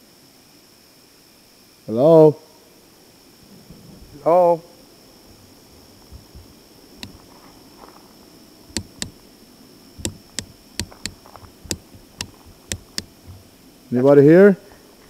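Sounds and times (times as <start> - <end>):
night insects droning: 0.0 - 15.0
sharp clicks and snaps: 6.1 - 7.3, 8.7 - 9.2, 10.0 - 13.5.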